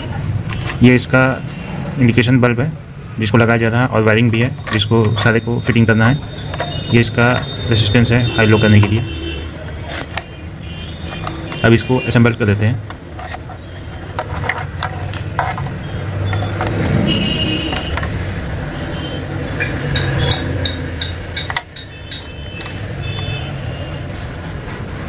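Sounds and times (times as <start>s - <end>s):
vehicle engine rumbling: 0.0s - 25.0s.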